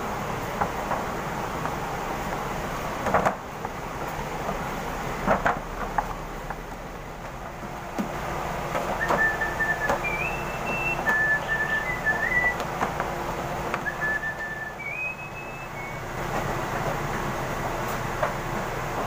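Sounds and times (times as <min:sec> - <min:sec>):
steady background noise: 0:00.0 - 0:19.0
person whistling a tune: 0:09.0 - 0:12.6, 0:13.8 - 0:16.0.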